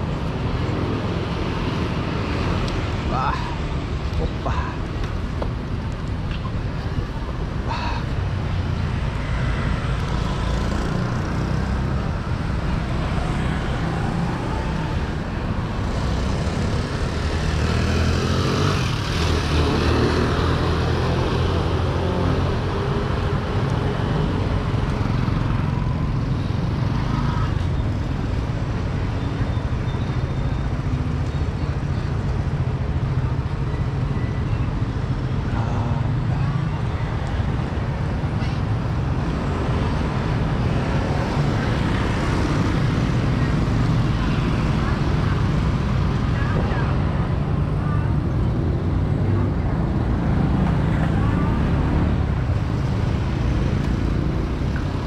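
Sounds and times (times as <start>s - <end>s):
motor vehicles passing: 0.0s - 55.0s.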